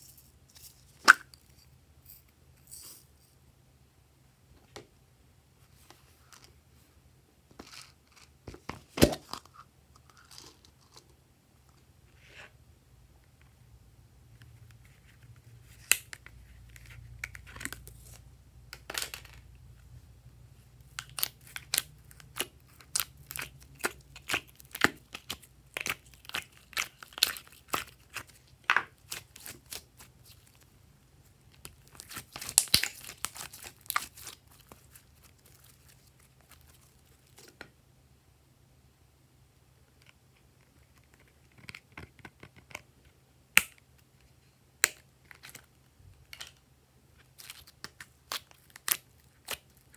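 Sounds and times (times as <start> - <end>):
slime popping and crackling: 20.9 - 30.6, 31.5 - 37.4.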